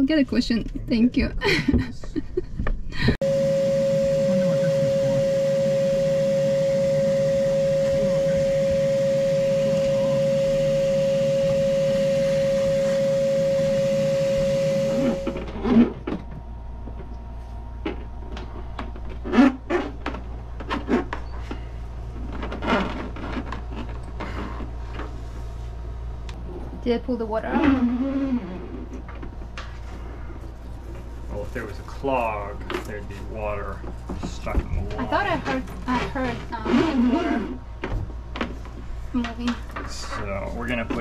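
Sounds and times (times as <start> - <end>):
vacuum cleaner whine: 3.2 - 25.3, 31.3 - 38.6.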